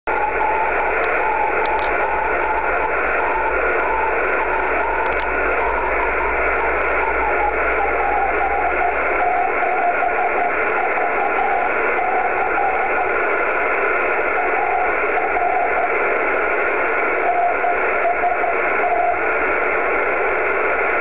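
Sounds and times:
receiver hiss: 0.1s - 21.0s.

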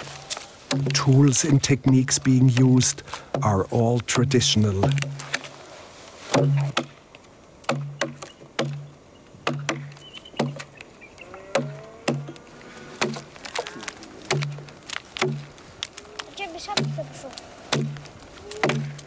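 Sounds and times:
adzes chopping into wood: 0.7s - 1.3s, 4.8s - 5.5s, 6.3s - 7.0s, 7.6s - 10.7s, 11.5s - 15.5s, 16.7s - 17.0s, 17.7s - 19.0s.

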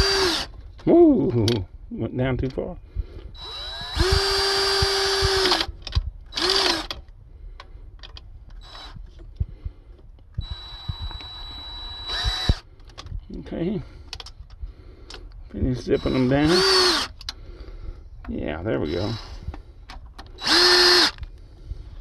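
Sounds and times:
power drill spinning bolts: 0.0s - 0.6s, 3.4s - 7.0s, 8.0s - 9.3s, 10.4s - 13.2s, 15.8s - 17.4s, 18.8s - 21.3s.

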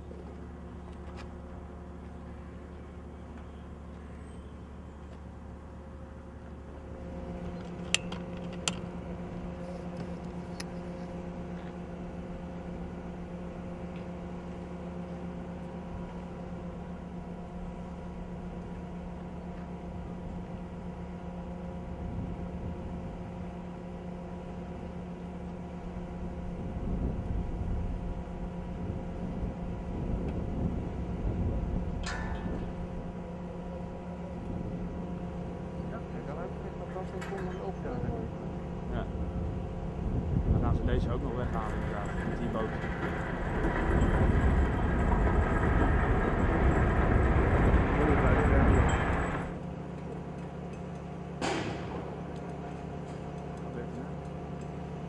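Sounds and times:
crane engine hum: 0.0s - 55.0s
low rumble: 25.7s - 49.7s.

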